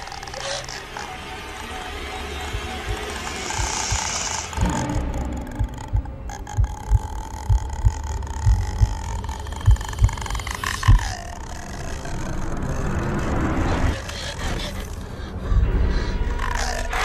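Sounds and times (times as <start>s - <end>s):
heartbeat-like thumping: 2.4s - 11.2s.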